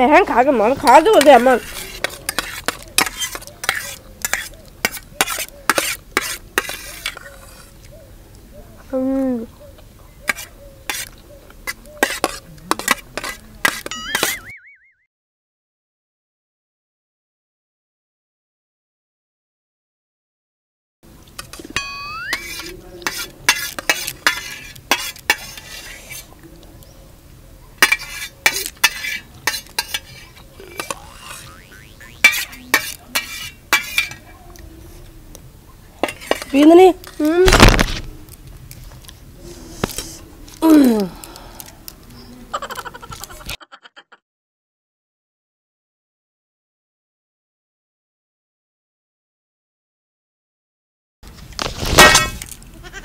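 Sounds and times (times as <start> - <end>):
spoons clinking on steel plates: 12.0 - 14.4, 21.7 - 25.6, 27.8 - 31.4, 32.2 - 34.2.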